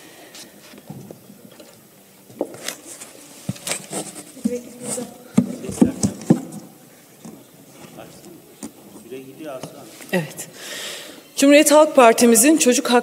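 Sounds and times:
rustling of handled objects: 0.3 - 10.4.

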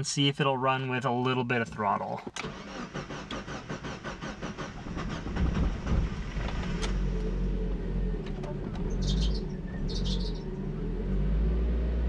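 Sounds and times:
starter motor cranking: 2.4 - 7.0
car engine running: 2.6 - 12.0.

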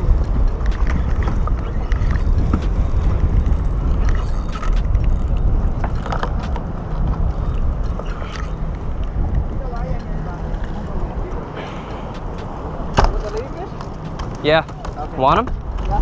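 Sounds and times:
wind rumbling on microphone: 0.0 - 16.0
fishing reel clicking: 0.1 - 6.6, 7.2 - 8.6.

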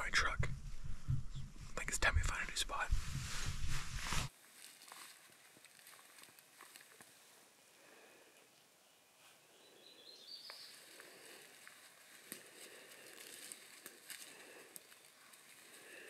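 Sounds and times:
footsteps crunching dry leaves: 3.2 - 7.0, 11.0 - 16.0.

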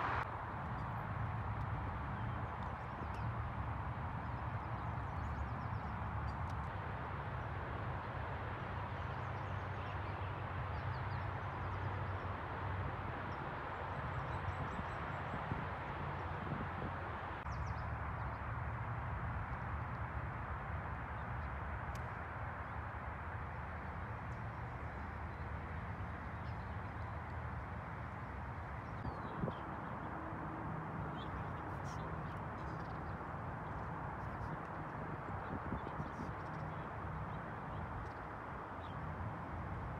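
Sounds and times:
outdoor background rush: 0.0 - 39.9
wind on microphone: 14.0 - 17.4, 28.7 - 38.4.

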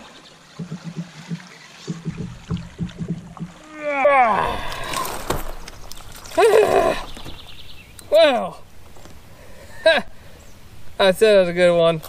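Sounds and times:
fish splashing: 0.0 - 7.6
person crying out: 3.7 - 5.2, 6.4 - 7.0.

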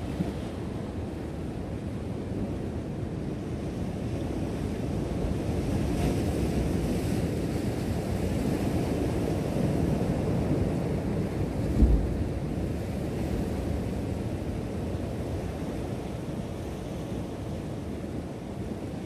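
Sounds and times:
wind buffeting microphone: 5.2 - 17.4.

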